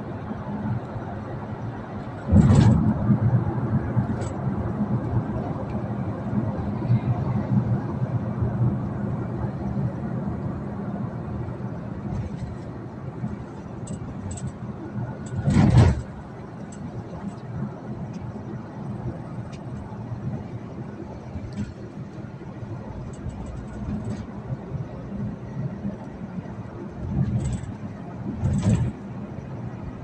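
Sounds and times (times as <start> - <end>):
loud rush of passing traffic: 0.0 - 30.0
road traffic: 0.0 - 30.0
vehicle rumble from inside: 0.0 - 30.0.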